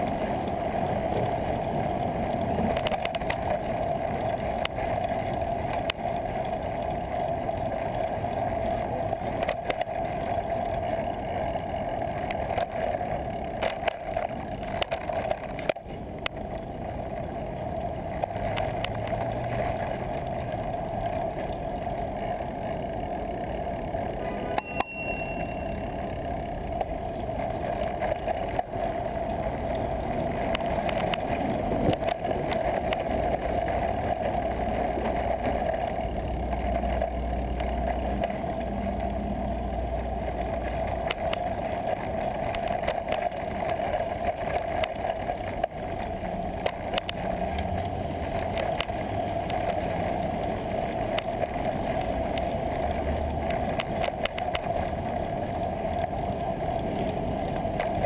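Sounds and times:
bike rattles and clicks: 0.0s - 58.0s
passing traffic engine rumble: 0.0s - 58.0s
wind and road noise: 0.0s - 58.0s.

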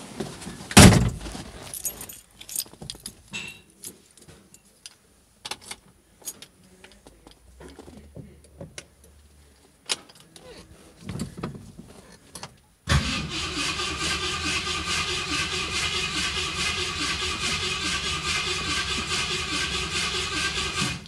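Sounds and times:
heavy thump: 0.8s - 1.4s
keys jangling: 1.7s - 3.2s.

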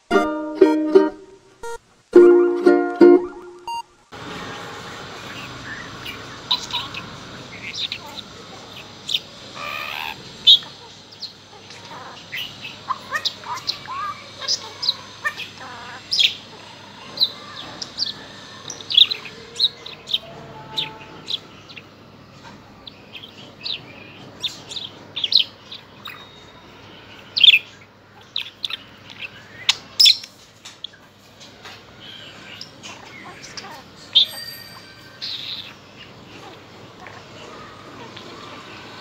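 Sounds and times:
budgerigar chirping and chattering: 5.2s - 21.9s, 22.8s - 26.6s, 27.2s - 31.0s, 32.0s - 38.9s.

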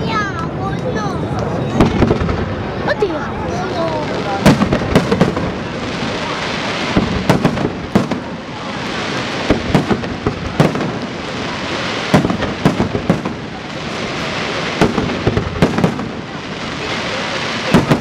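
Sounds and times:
continuous rushing noise: 0.0s - 18.0s
firework shells bursting: 4.0s - 18.0s.

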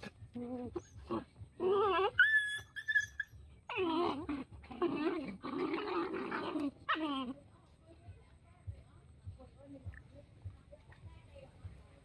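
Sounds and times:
puppies whining and yelping: 0.0s - 7.4s
high puppy squeal: 0.6s - 5.0s.

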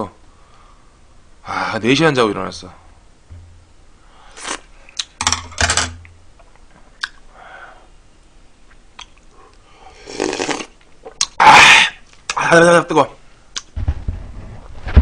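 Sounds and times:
slurping soup and noodles: 4.3s - 4.7s, 9.9s - 11.3s.

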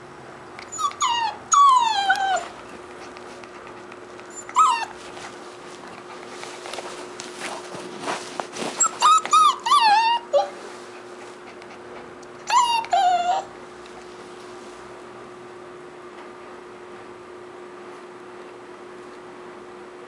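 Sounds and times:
puppy whining yelps: 0.7s - 2.6s, 4.3s - 5.2s, 8.8s - 10.6s, 12.4s - 13.5s
scuffling rustle: 4.6s - 11.4s.

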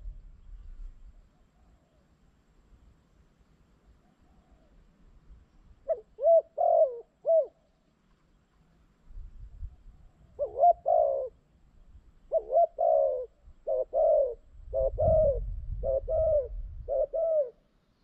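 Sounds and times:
dove cooing: 4.0s - 4.8s, 5.8s - 7.7s, 10.1s - 11.4s, 12.3s - 17.7s.

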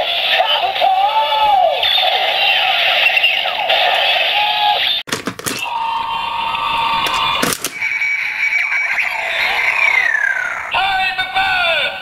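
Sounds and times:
plastic clicks: 5.1s - 5.6s, 7.1s - 7.8s
electronic sound effect: 5.6s - 10.8s.

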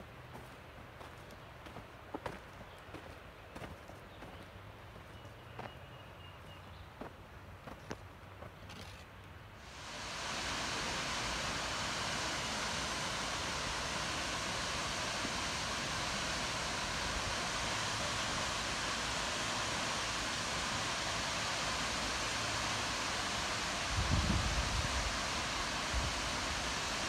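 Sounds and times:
waterfall splashing into pool: 9.6s - 27.0s.

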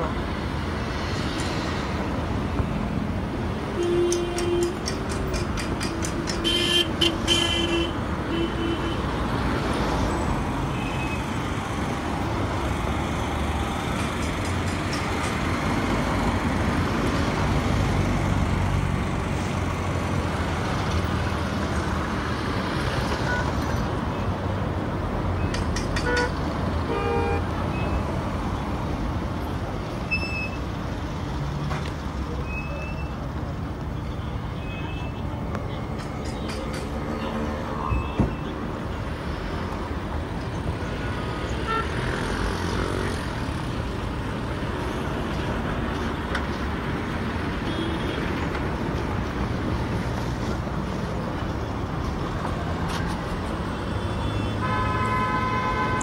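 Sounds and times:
car engines passing: 0.0s - 56.0s
car horn toots: 3.8s - 4.8s, 54.2s - 56.0s.

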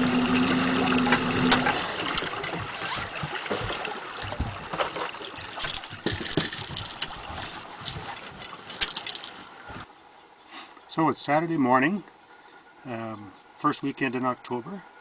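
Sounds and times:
water lapping against boat hull: 0.0s - 10.0s
knocks and bumps in boat: 0.1s - 9.9s.

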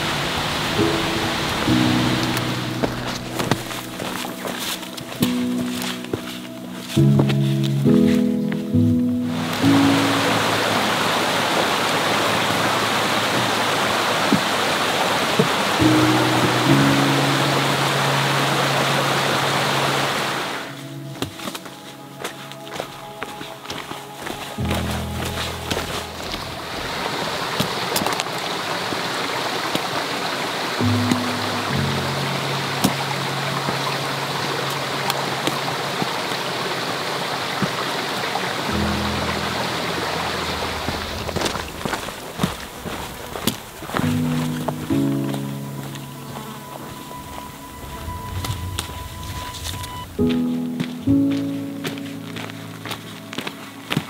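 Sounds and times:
held music notes: 0.0s - 54.0s
rushing water: 0.0s - 54.0s
low held tone: 44.2s - 50.8s.

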